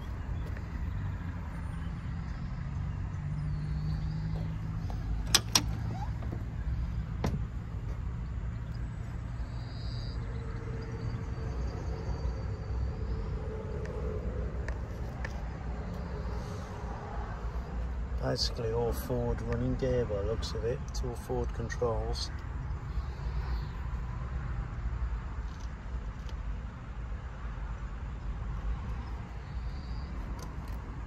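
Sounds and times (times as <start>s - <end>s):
low rumble of motor vehicles: 0.0s - 31.0s
car door latch clicks: 5.2s - 6.4s.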